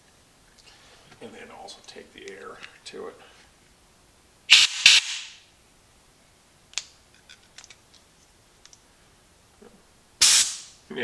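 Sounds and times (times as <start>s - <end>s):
compressed air blast: 4.5s - 5.4s, 10.2s - 10.8s.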